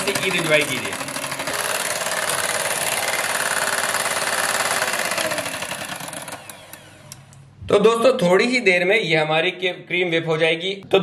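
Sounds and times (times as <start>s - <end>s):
whisk churning cream: 0.0s - 6.6s
hand blender whirring: 0.0s - 7.3s.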